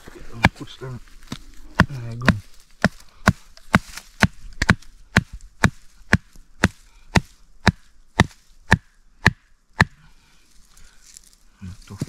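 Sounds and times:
blade chopping into wood: 1.8 - 10.0.

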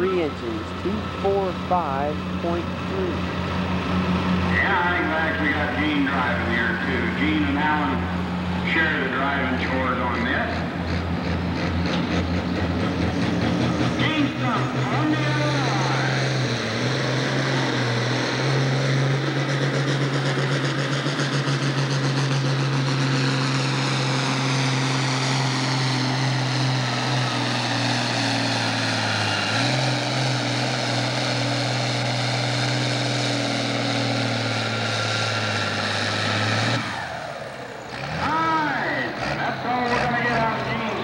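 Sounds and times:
tractor engine at full throttle: 0.0 - 41.0.

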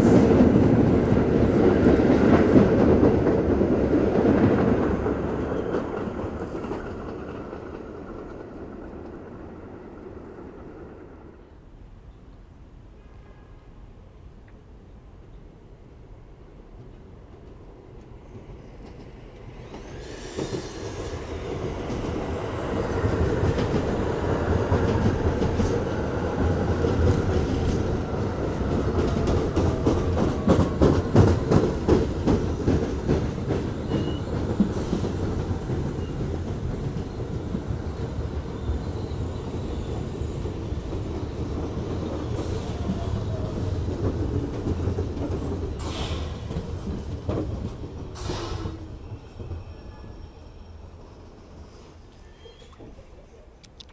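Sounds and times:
high brake screeches: 51.6 - 52.9.

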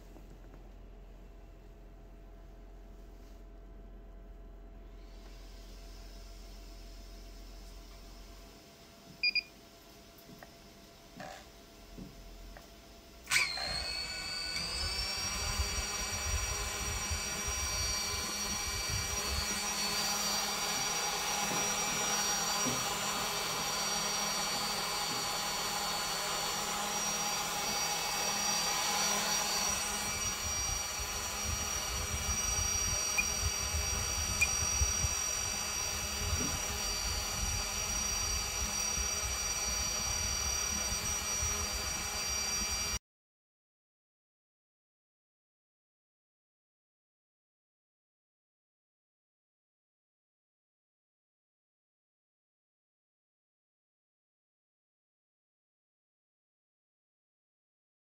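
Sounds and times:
drone propellers whining: 13.3 - 43.0.

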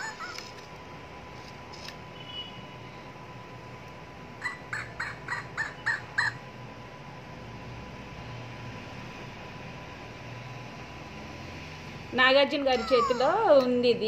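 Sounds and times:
toy monkey high chirps: 0.0 - 0.5, 4.4 - 6.4.

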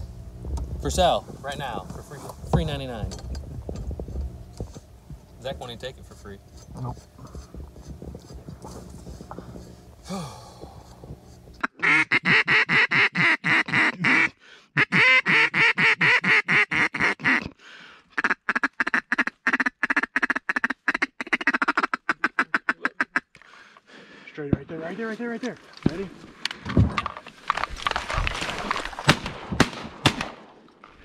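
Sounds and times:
duck call quacking: 11.6 - 23.3.

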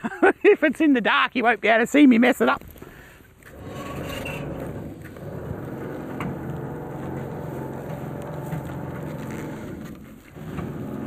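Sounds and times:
hydraulic crane drive running: 3.5 - 11.0.

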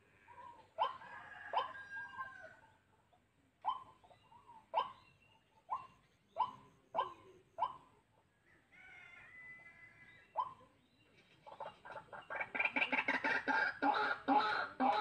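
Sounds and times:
animal barking calls: 3.6 - 7.9.

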